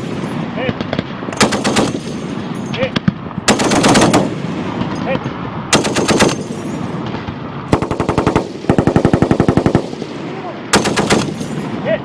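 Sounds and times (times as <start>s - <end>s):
heavy machine gun bursts: 1.4s - 2.2s, 3.5s - 4.4s, 5.7s - 6.6s, 7.7s - 9.9s, 10.7s - 11.6s.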